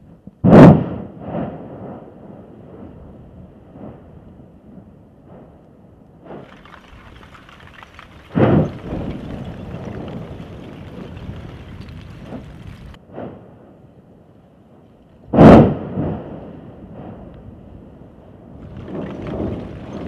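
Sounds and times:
volcanic rumbling: 0.0 - 20.0
volcanic explosion bangs: 0.4 - 4.1, 6.2 - 13.7, 15.3 - 20.0.

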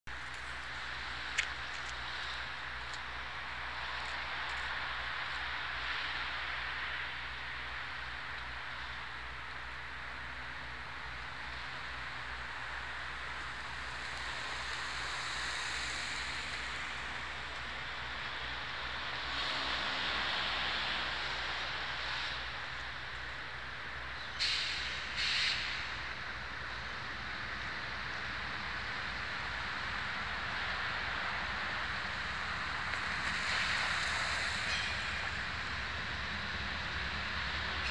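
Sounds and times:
diesel locomotive hum: 0.1 - 37.9
outdoor hiss: 24.2 - 26.5.

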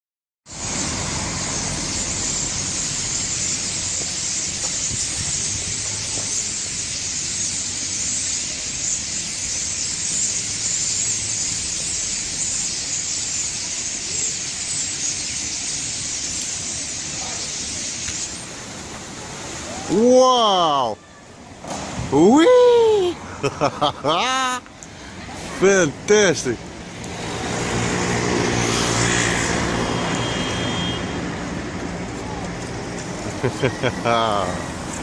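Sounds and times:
starling flock chattering: 1.9 - 18.5.

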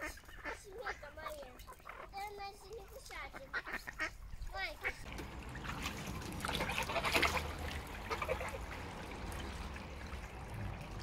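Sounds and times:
ducks calling: 0.0 - 5.1, 6.4 - 9.0
water trickling into pond: 0.0 - 11.0.

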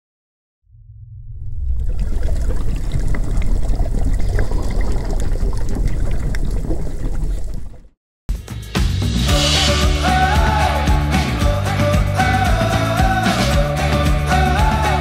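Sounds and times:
rumbling watery sound effect: 0.7 - 8.0
music: 8.3 - 15.0.

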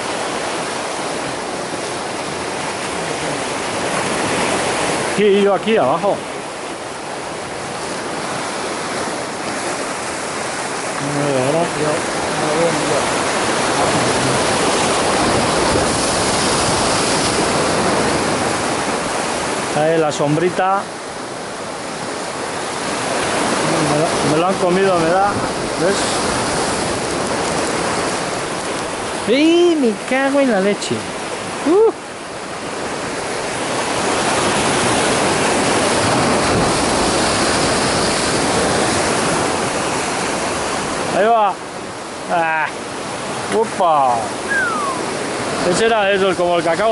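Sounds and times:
sea surf breaking over rocks: 0.0 - 46.9
person exclaiming: 31.6 - 32.0, 44.5 - 45.1.

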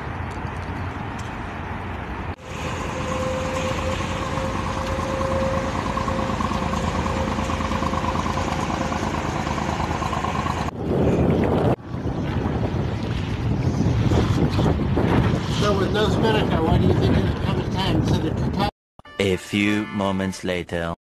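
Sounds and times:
boat engine humming: 0.0 - 10.8.

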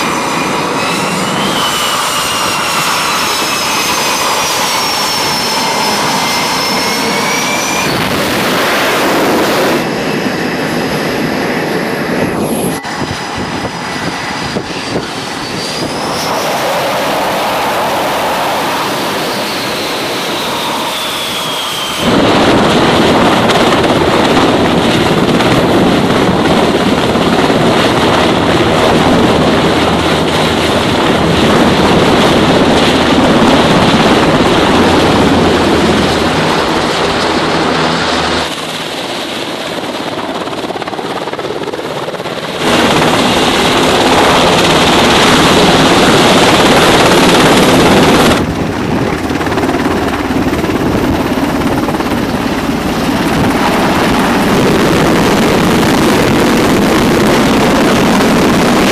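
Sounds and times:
helicopter hovering: 0.0 - 58.9.

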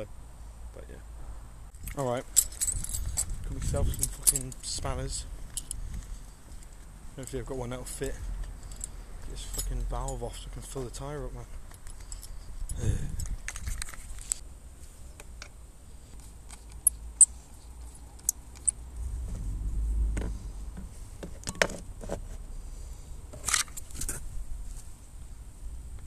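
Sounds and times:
low rumble: 18.9 - 20.8.

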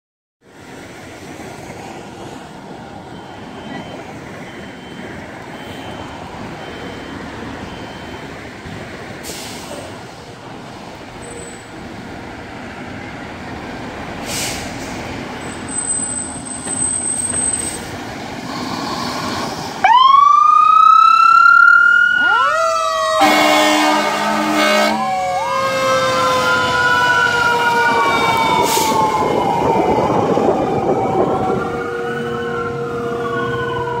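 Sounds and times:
siren wailing: 19.8 - 34.0
horn blast: 23.2 - 26.5.

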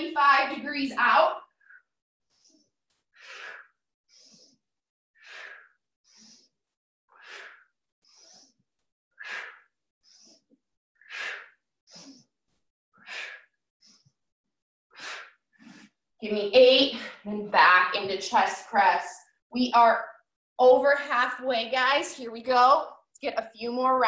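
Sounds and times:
woman breathing hard: 3.2 - 4.6, 5.2 - 6.4, 7.2 - 8.4, 9.2 - 10.4, 11.0 - 12.2, 13.0 - 13.5, 15.0 - 15.8.

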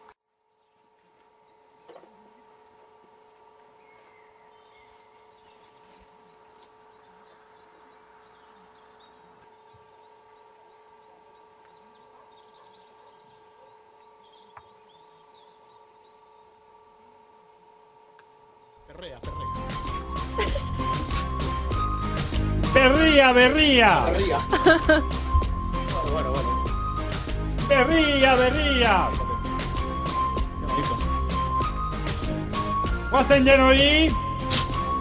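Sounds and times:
crickets trilling: 0.0 - 22.3
steady low hum: 0.0 - 22.8.

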